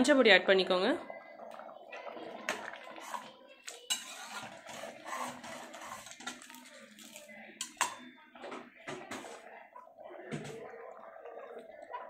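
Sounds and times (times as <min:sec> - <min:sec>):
metal spoon scraping pot: 0:02.5 - 0:06.6.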